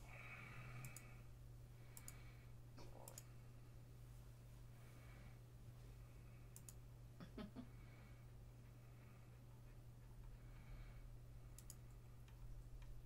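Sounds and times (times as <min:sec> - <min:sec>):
steady low hum: 0:00.0 - 0:13.0
faint sharp clicks: 0:01.9 - 0:02.2, 0:06.5 - 0:06.8, 0:11.6 - 0:13.0.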